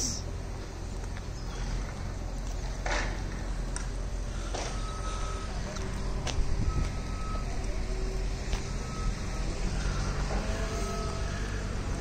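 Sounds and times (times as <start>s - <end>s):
low engine rumble: 0.0s - 12.0s
reversing alarm beeping: 4.3s - 12.0s.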